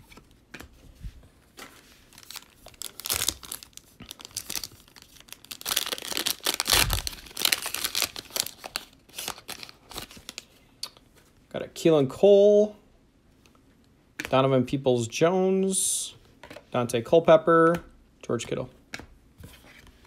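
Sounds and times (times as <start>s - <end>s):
foil pack tearing and crinkling: 2.2s - 10.4s.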